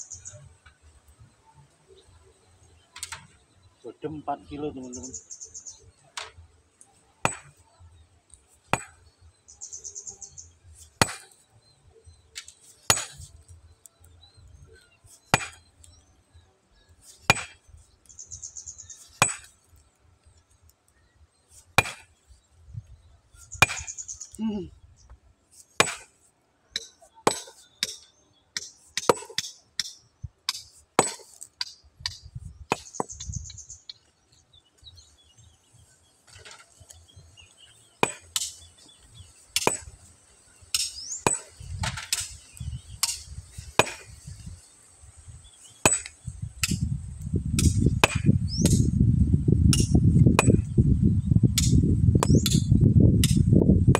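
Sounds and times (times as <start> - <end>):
hammer striking stone: 7.2 - 7.6, 8.7 - 9.0, 11.0 - 11.4, 12.9 - 13.3, 15.3 - 15.6, 17.3 - 17.6, 19.2 - 19.5, 21.8 - 22.1, 23.6 - 24.0, 25.8 - 26.1, 26.8 - 33.2, 38.0 - 38.6, 39.6 - 40.0, 40.7 - 42.4, 43.0 - 44.1, 45.8 - 46.8, 47.6 - 48.8, 49.7 - 50.7.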